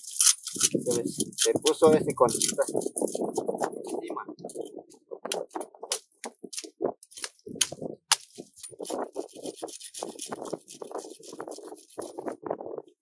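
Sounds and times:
blade scraping along branch: 0:00.0 - 0:04.8, 0:08.2 - 0:12.4.

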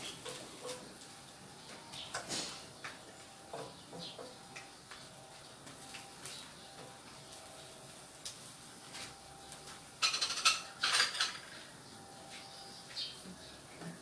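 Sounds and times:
kitchenware clattering: 0:10.0 - 0:11.5.

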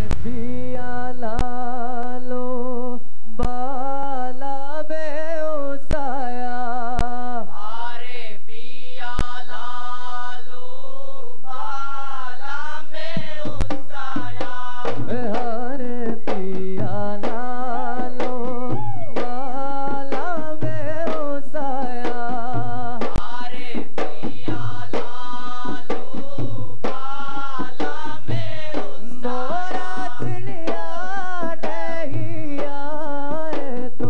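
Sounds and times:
sharp drum strikes: 0:13.0 - 0:32.8
big drums beating: 0:13.0 - 0:34.0.

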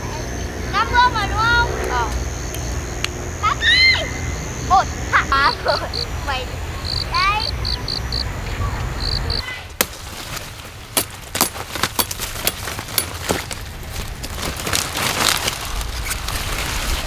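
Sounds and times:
leaves rustling and crackling: 0:08.5 - 0:17.0
stalks snapping as cut: 0:09.8 - 0:13.6.

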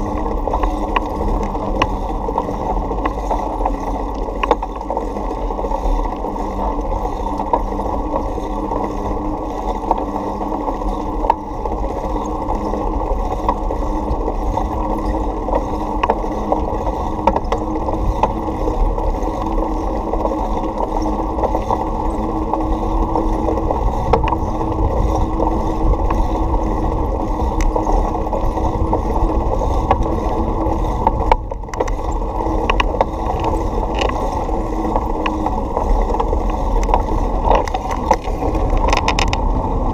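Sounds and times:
muffled wind and road noise: 0:00.0 - 0:39.9
bicycle clicks and rattles: 0:03.0 - 0:04.9, 0:28.6 - 0:39.6.

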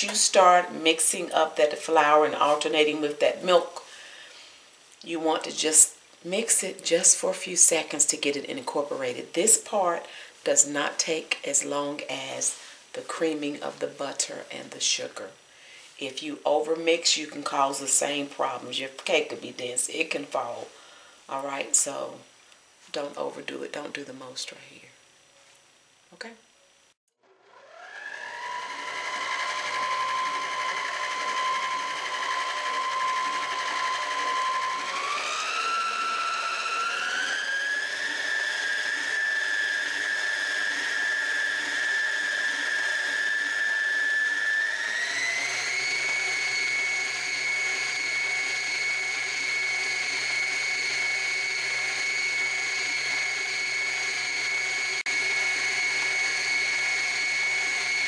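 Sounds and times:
stand mixer motor whining: 0:27.2 - 0:58.0.

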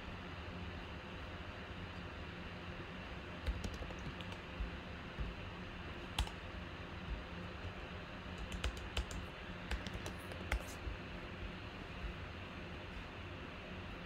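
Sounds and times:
faint steady hum: 0:00.0 - 0:14.0
keyboard key clicks: 0:03.4 - 0:05.3, 0:06.2 - 0:06.4, 0:08.4 - 0:10.8.

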